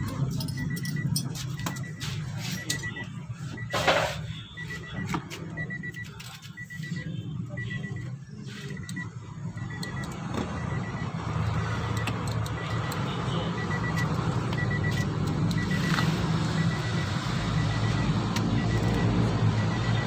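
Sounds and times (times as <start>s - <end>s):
faint high electronic beep: 0.5s - 11.0s.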